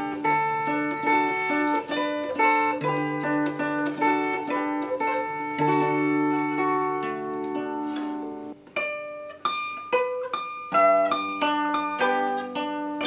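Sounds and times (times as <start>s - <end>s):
plucked zither melody: 0.0s - 13.0s.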